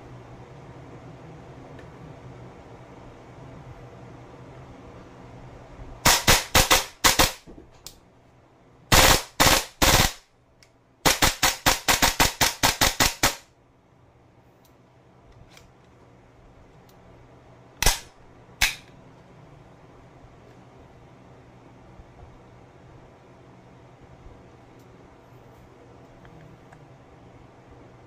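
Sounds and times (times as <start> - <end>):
airsoft rifle shots: 6.0 - 7.5, 8.9 - 10.2, 11.0 - 13.5, 17.8 - 18.8.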